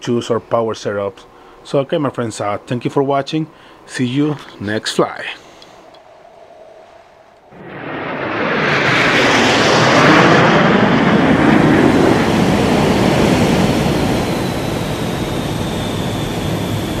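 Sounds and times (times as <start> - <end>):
faint high jet whine: 0.0 - 17.0
jet aircraft flying past: 5.6 - 17.0.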